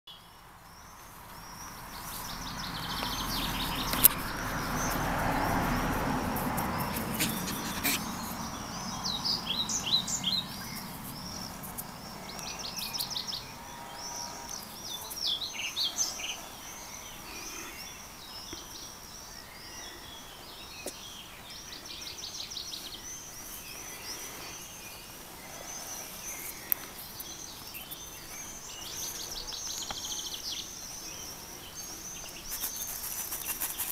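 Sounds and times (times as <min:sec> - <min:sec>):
songbirds chirping and singing: 0:00.1 - 0:33.9
broad rushing noise: 0:01.8 - 0:17.9.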